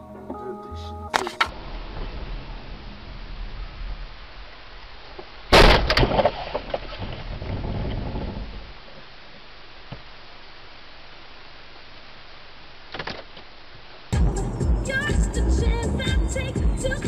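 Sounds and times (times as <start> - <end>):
steady low noise: 0.0 - 12.9, 13.5 - 17.0
rumble: 1.5 - 12.8.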